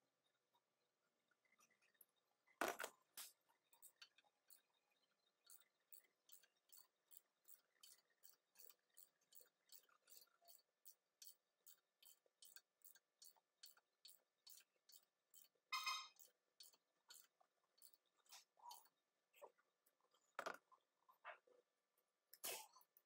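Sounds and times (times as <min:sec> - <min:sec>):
ratchet wrench clicking: 0:05.5 - 0:15.6.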